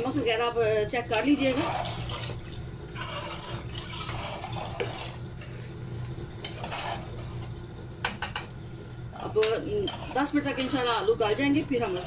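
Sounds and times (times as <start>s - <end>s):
steady low hum: 0.0s - 12.0s
ladle stirring liquid in pot: 1.1s - 12.0s.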